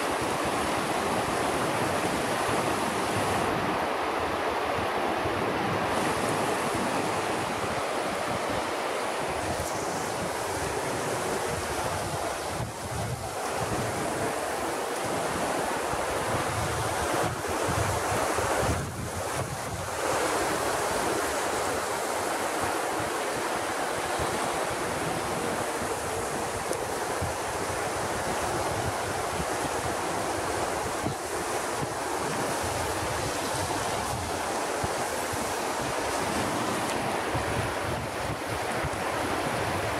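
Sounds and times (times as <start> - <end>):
river rapids rushing: 0.0 - 39.9
wind buffeting microphone: 0.0 - 39.9.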